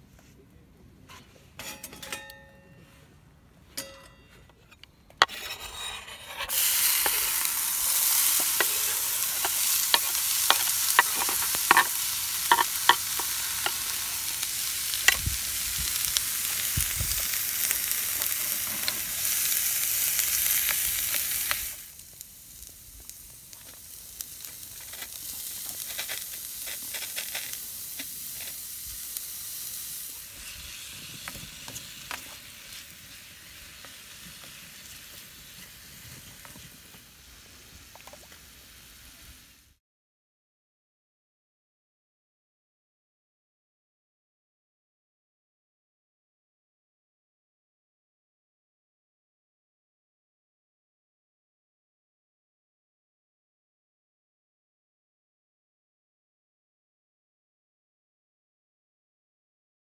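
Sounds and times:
wooden spatula scraping pan: 5.2 - 14.3
onion sizzling in skillet: 5.2 - 39.8.

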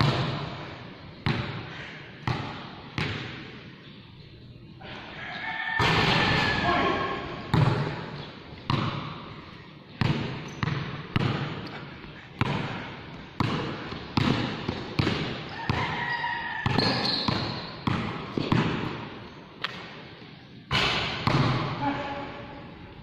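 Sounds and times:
basketball bouncing on hard floor: 7.5 - 8.0, 8.7 - 9.1, 10.0 - 11.8, 12.4 - 19.8, 20.7 - 21.7.

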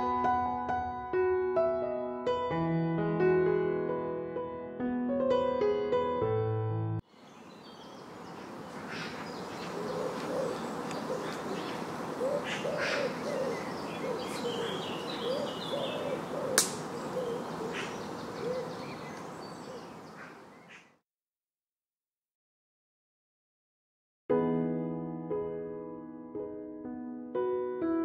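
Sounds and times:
background hiss: 7.1 - 20.9
high bird chirps: 7.2 - 20.9
low hooting bird calls: 7.2 - 21.0
sharp click: 16.6 - 16.9.

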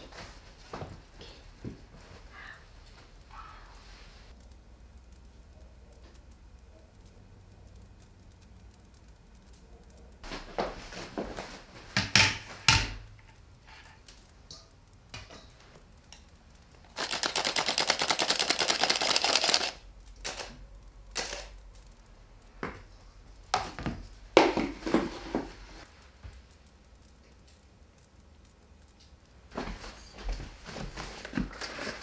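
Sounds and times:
kitchen knocks and clatter: 11.9 - 13.1.

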